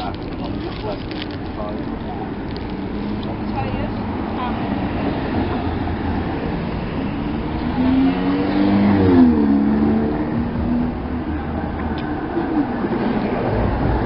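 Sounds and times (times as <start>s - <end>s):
steady background noise: 0.0s - 14.0s
vehicle engine passing by: 2.8s - 14.0s.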